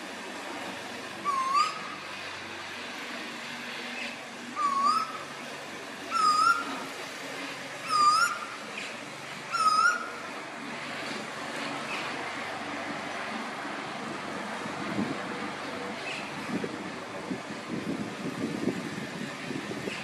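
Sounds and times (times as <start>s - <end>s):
bird calling upswept calls: 1.2s - 2.0s, 4.6s - 5.3s, 6.1s - 6.9s, 7.8s - 8.9s, 9.5s - 10.2s.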